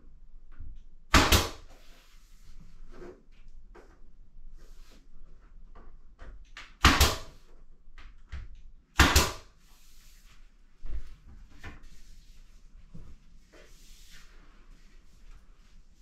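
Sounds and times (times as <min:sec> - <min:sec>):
nail gun firing: 0:01.1 - 0:01.6, 0:06.8 - 0:07.4, 0:09.0 - 0:09.5.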